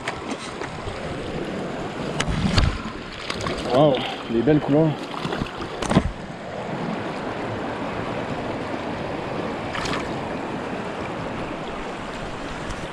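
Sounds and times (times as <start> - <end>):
water splash: 2.1 - 4.3, 4.9 - 6.2, 9.7 - 10.3
river flowing over rocks: 5.5 - 12.9.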